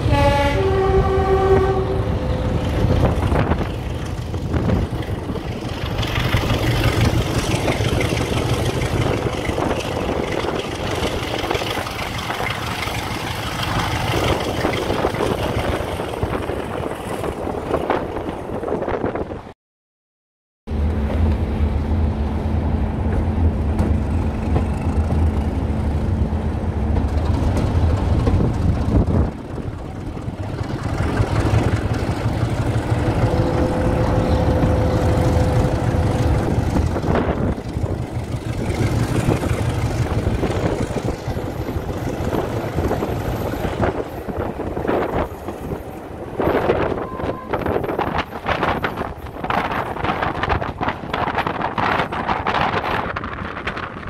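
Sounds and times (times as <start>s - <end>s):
wind buffeting microphone: 0.0s - 19.5s, 22.8s - 54.0s
diesel engine droning: 20.7s - 44.1s.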